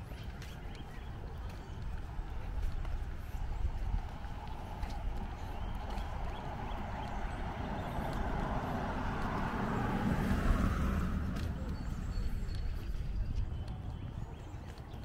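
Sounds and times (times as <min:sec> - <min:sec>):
car tyres hissing on wet street: 0:06.8 - 0:11.3.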